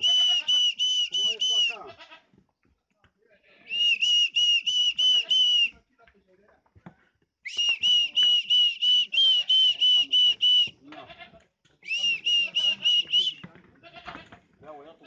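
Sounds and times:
person whistling short notes: 0:00.0 - 0:01.8, 0:03.7 - 0:05.8, 0:07.5 - 0:10.7, 0:11.8 - 0:13.4.

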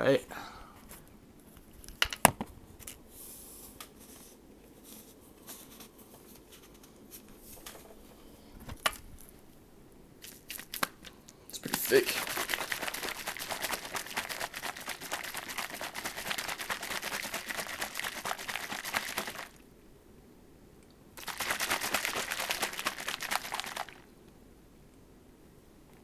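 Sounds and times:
shaker bottle rattling slosh: 0:11.6 - 0:19.6, 0:21.2 - 0:24.0.

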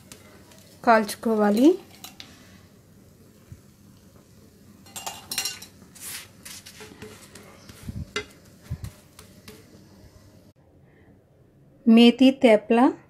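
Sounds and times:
spatula scraping and tapping on pan: 0:04.8 - 0:09.9.

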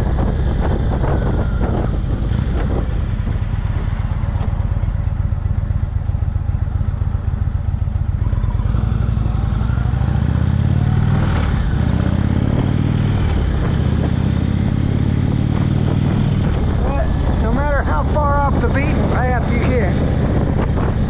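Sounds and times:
wind rushing: 0:00.0 - 0:04.1, 0:09.6 - 0:21.0
motorcycle engine accelerating: 0:00.0 - 0:21.0.

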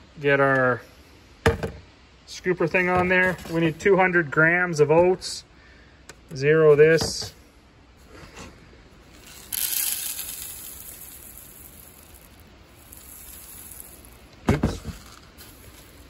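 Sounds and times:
oat kernels poured into scoop: 0:09.1 - 0:16.0.

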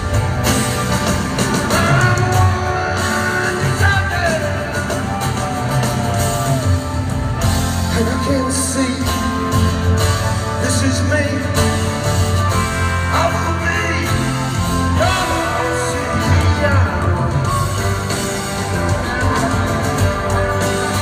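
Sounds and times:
acoustic guitar: 0:00.0 - 0:21.0
drums: 0:00.0 - 0:21.0
rock band playing live: 0:00.0 - 0:21.0
person singing: 0:01.4 - 0:06.9, 0:07.7 - 0:09.8, 0:13.0 - 0:19.6.

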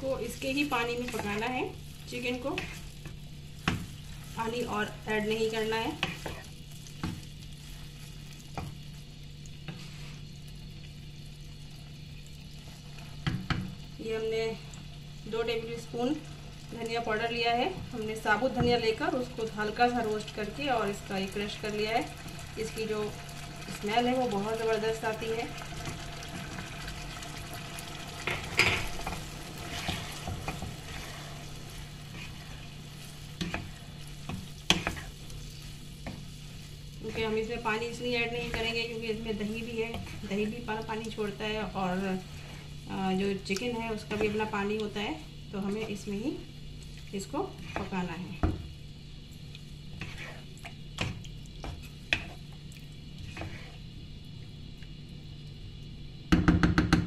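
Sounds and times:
light sizzle: 0:00.0 - 0:57.0
wooden spatula scraping a pan: 0:00.2 - 0:08.9, 0:09.6 - 0:10.3, 0:28.2 - 0:44.7, 0:46.8 - 0:48.3, 0:49.9 - 0:52.4, 0:53.2 - 0:53.9
spoon stirring thick gravy: 0:24.8 - 0:41.3, 0:43.5 - 0:45.0, 0:49.4 - 0:53.8.

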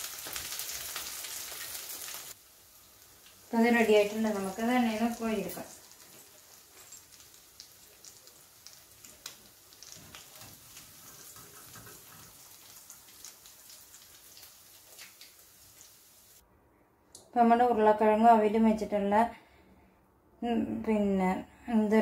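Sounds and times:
food sizzling in oil: 0:00.0 - 0:16.4
oil crackling and popping: 0:00.0 - 0:16.4.

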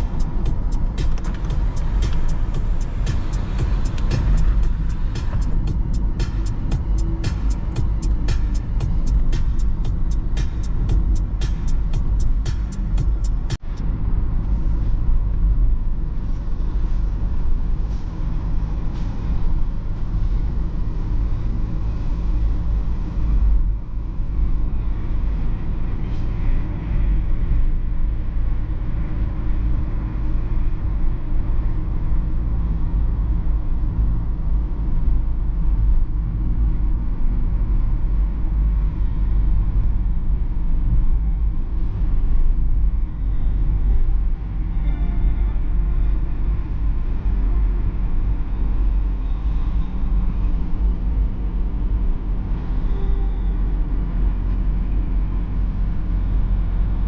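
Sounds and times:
diesel engine running: 0:00.0 - 0:13.6
tyre and road noise: 0:00.0 - 0:14.0.

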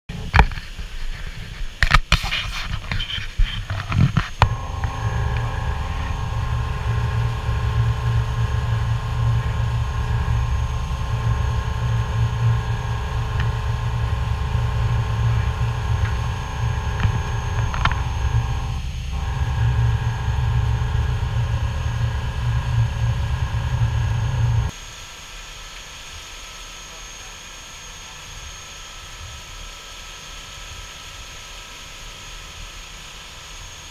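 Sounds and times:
steady hum: 0:00.1 - 0:33.9
boat engine rumble: 0:03.7 - 0:24.7.

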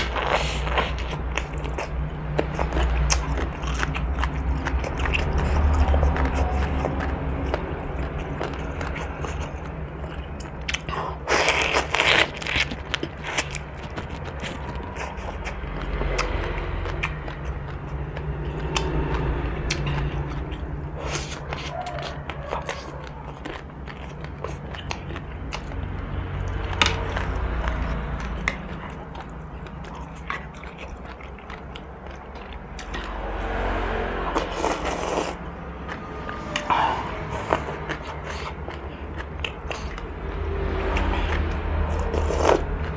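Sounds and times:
wet chewing: 0:00.0 - 0:42.9
noodle slurp: 0:34.4 - 0:35.4.

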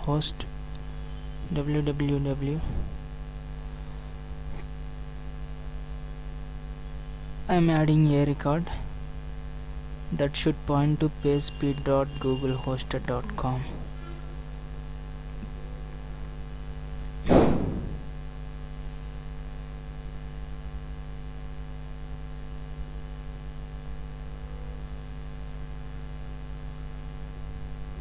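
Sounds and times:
electrical mains hum: 0:00.0 - 0:28.0
sudden loud knock: 0:17.3 - 0:18.0.

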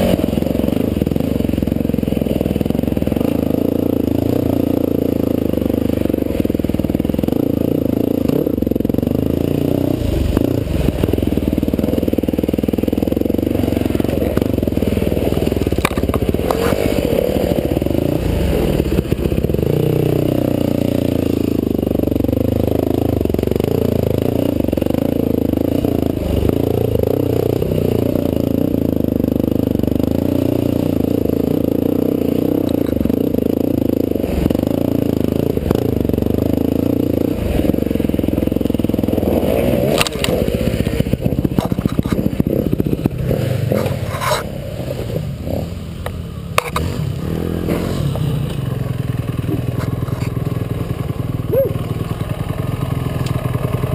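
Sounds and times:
dirt bike engine revving: 0:00.0 - 0:53.9
knocks and clatter of bike: 0:10.1 - 0:17.9, 0:32.3 - 0:45.2, 0:46.0 - 0:53.9.

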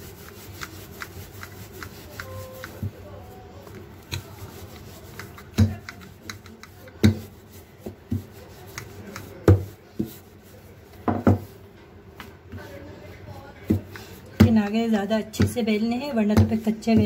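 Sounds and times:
rolling pin rubbing on dough: 0:00.0 - 0:11.8, 0:12.5 - 0:17.0
rolling pin knocking on counter: 0:05.5 - 0:08.3, 0:09.2 - 0:10.2, 0:11.0 - 0:11.5, 0:15.3 - 0:17.0.

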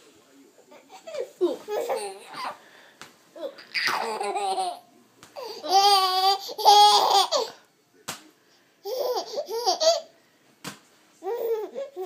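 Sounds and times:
baby laughing: 0:00.9 - 0:02.6, 0:03.4 - 0:07.6, 0:08.8 - 0:10.1, 0:11.2 - 0:12.0.

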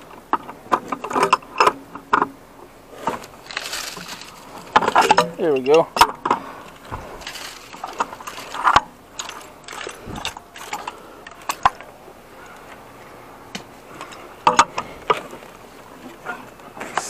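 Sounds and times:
metal clicks and clanks: 0:00.0 - 0:02.4, 0:03.0 - 0:12.8, 0:13.5 - 0:15.6.

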